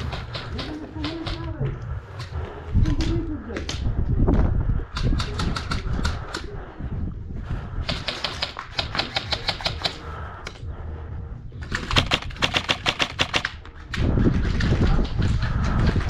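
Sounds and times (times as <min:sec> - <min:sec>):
airsoft gun rapid shots: 0:07.8 - 0:10.0, 0:11.7 - 0:13.6.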